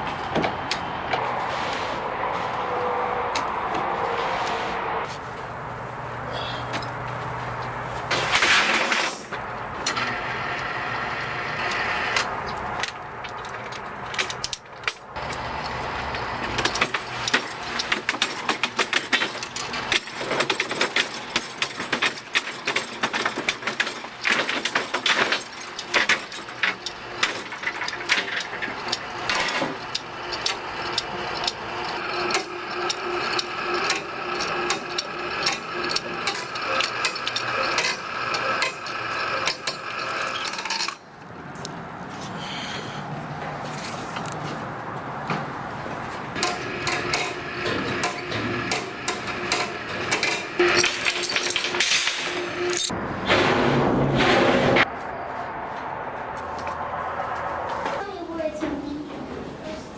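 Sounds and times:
chain hoist clicking: 9.8s - 41.1s, 46.4s - 53.0s
chain rattling: 46.4s - 53.0s.

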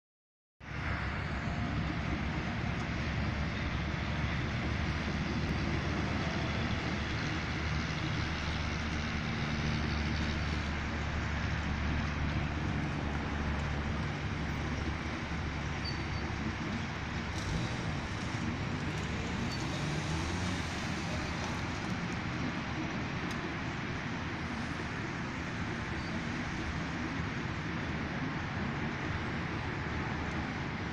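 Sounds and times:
highway traffic drone: 0.6s - 30.9s
car driving past: 15.8s - 22.2s.

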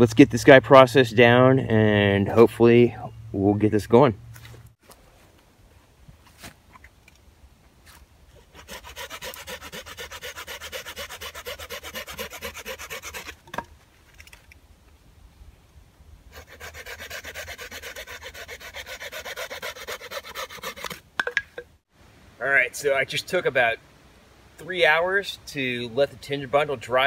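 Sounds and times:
knife scraping wooden stick: 8.4s - 13.5s, 16.3s - 21.0s.

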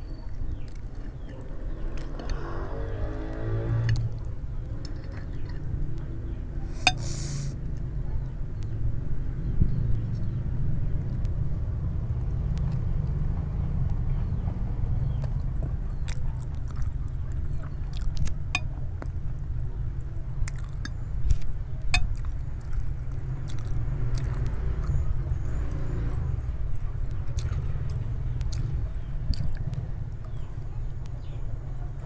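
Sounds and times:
chewing: 3.9s - 6.1s, 15.2s - 19.2s, 20.4s - 24.9s, 27.2s - 31.2s.

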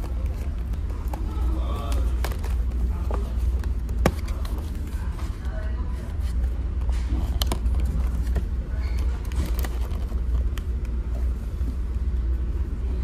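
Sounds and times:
paper box clicks and rustles: 0.0s - 5.5s, 6.1s - 11.0s.

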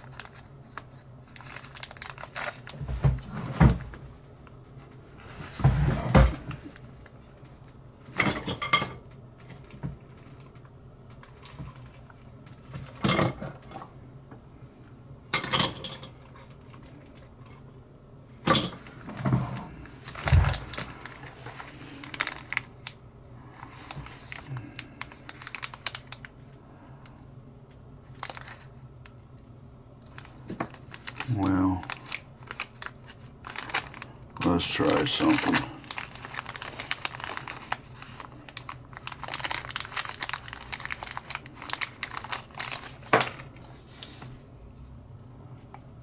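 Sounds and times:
low steady hum: 0.0s - 46.0s.

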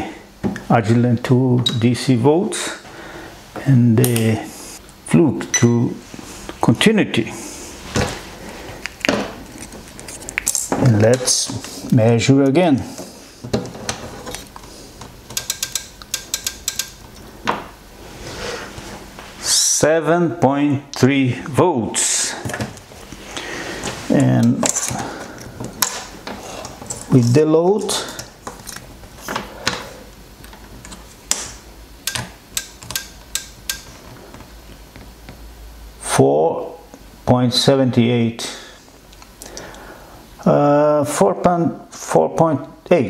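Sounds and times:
test probes clicking and tapping: 14.5s - 17.7s, 30.4s - 35.4s
metal probe scraping and clicking: 15.3s - 17.2s, 32.1s - 33.9s.

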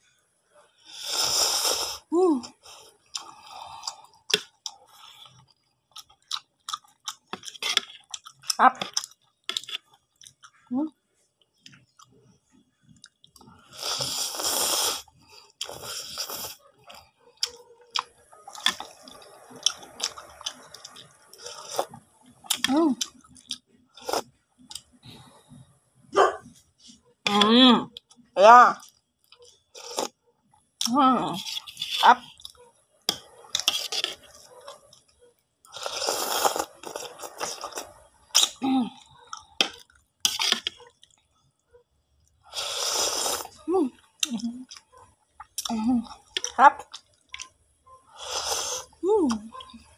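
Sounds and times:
slurping noodles: 0.9s - 2.1s, 13.6s - 22.7s, 24.0s - 24.3s, 29.8s - 30.2s, 33.1s - 34.9s, 35.7s - 38.6s, 39.3s - 40.9s, 42.5s - 43.6s, 48.1s - 49.0s
wet chewing and lip smacks: 3.1s - 10.6s, 15.6s - 25.0s, 36.4s - 41.3s.

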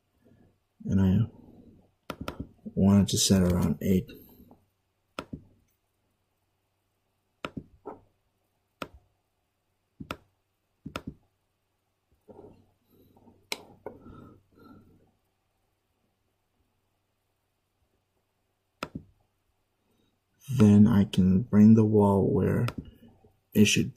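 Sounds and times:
mouse and keyboard clicks: 2.0s - 2.6s, 3.4s - 3.8s, 10.0s - 11.2s, 18.8s - 19.1s.

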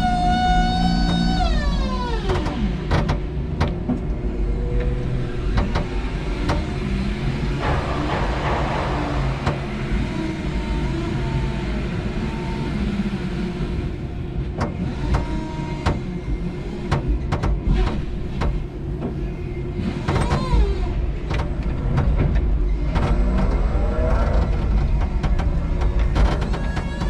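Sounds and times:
forklift low rumble: 0.0s - 14.6s
sharp clicks and knocks: 2.2s - 4.2s, 4.8s - 6.9s, 7.6s - 11.0s, 14.6s - 16.1s, 16.8s - 19.2s.

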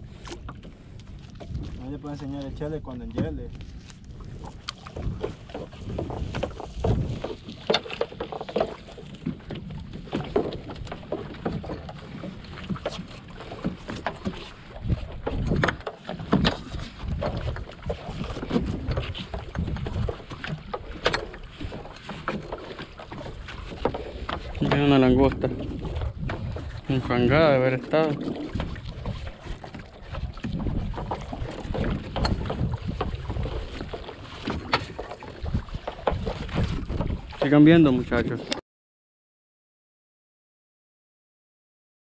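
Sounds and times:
water sloshing against boat hull: 0.0s - 38.6s.

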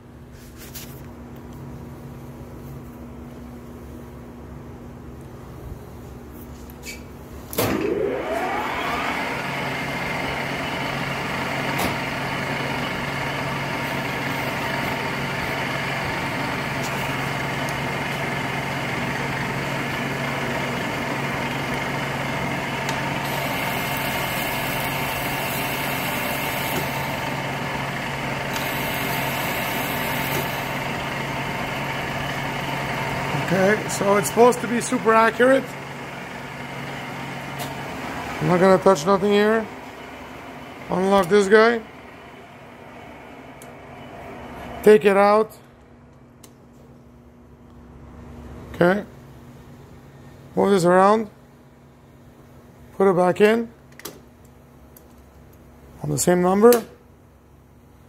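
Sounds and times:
metal lathe motor whining: 7.8s - 44.8s.

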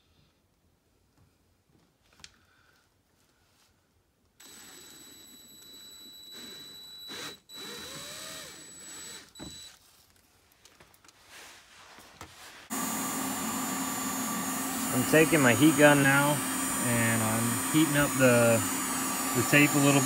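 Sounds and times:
cordless drill whining: 4.4s - 9.8s, 12.7s - 20.0s.

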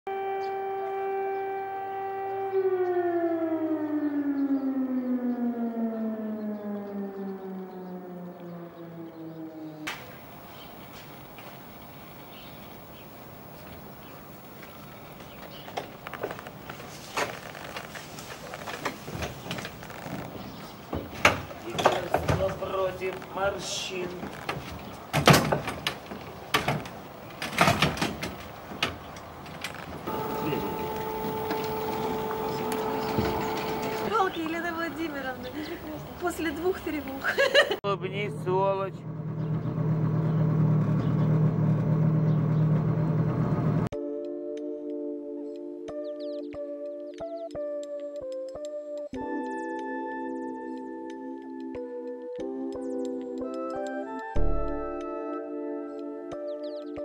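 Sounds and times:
air-raid siren winding down: 0.1s - 11.5s, 30.0s - 35.6s.

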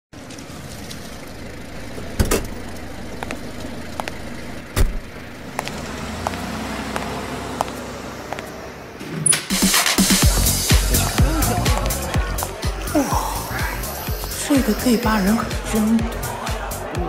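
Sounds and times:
low traffic-like rumble: 0.2s - 9.2s.

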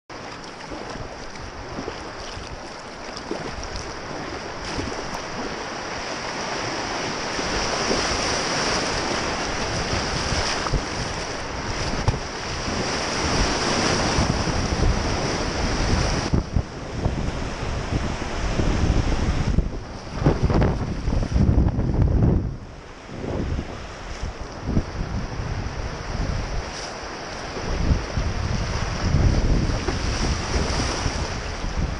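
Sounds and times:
whitewater rushing: 0.1s - 21.6s
wind buffeting microphone: 0.2s - 31.9s.

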